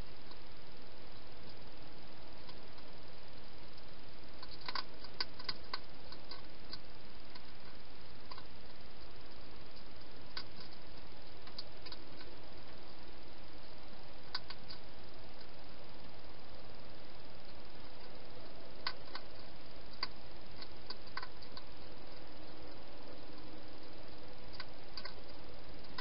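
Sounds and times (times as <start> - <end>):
steady hiss: 0.0 - 26.0
hedgehog eating crunches: 4.4 - 8.9, 13.9 - 15.6, 17.4 - 26.0.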